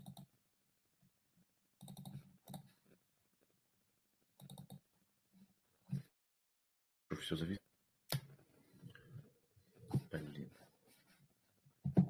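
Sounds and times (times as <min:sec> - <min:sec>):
computer clicking: 0:00.0 - 0:00.3, 0:01.8 - 0:02.7, 0:04.4 - 0:04.9.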